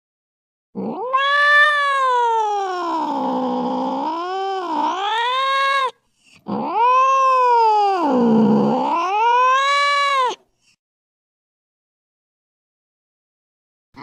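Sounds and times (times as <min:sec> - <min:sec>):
cat yowling: 0:00.8 - 0:10.4.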